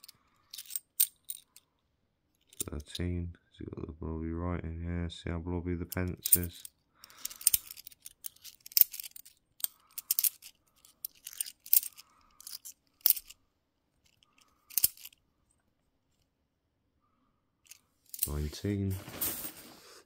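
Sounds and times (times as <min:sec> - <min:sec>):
coins clinking: 0:00.0 - 0:01.6, 0:05.9 - 0:13.4, 0:14.1 - 0:15.2, 0:17.7 - 0:19.6.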